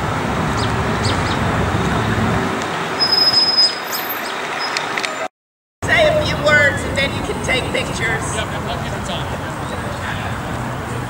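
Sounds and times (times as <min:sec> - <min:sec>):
road traffic rumble: 0:00.0 - 0:11.0
birds chirping: 0:00.5 - 0:01.5
thin high whistle: 0:03.0 - 0:03.9.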